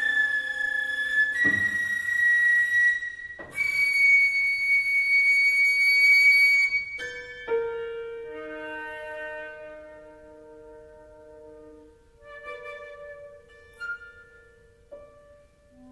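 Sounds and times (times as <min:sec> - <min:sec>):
flute playing long notes: 0:00.0 - 0:07.1, 0:08.2 - 0:14.7
piano notes ringing: 0:07.0 - 0:15.9.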